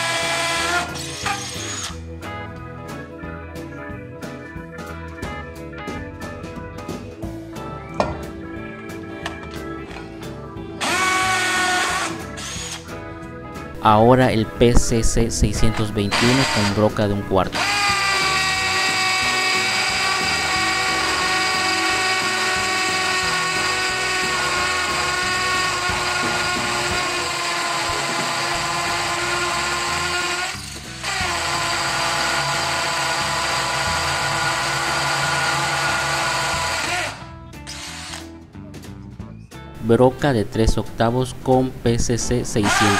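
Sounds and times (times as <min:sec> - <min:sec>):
hammer drill boring into concrete: 0:00.0 - 0:02.0, 0:10.8 - 0:12.8, 0:16.1 - 0:16.9, 0:17.5 - 0:38.3, 0:42.6 - 0:42.9.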